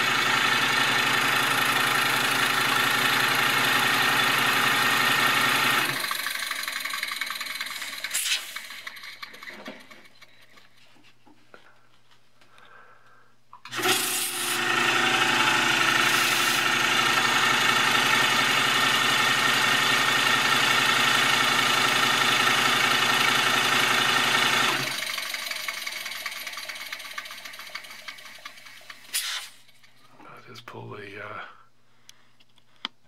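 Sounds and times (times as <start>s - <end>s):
model steam engine exhaust buzz: 0.0s - 10.2s, 13.7s - 29.7s
hissing air: 7.7s - 8.6s, 29.1s - 29.6s.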